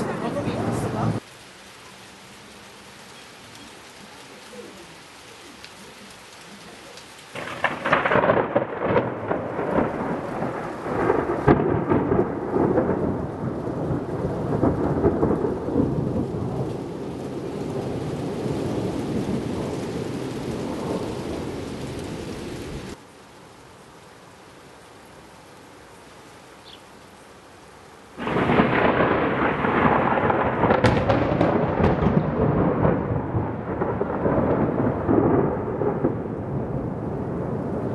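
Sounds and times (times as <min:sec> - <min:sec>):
thunder clap and rumble: 0:00.0 - 0:01.2, 0:07.3 - 0:23.0, 0:28.2 - 0:37.9
rain hissing: 0:00.0 - 0:37.9.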